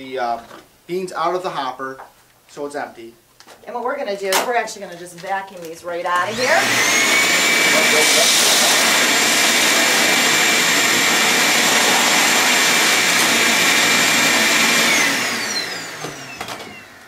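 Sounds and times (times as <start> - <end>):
vacuum cleaner whining: 6.2 - 17.0.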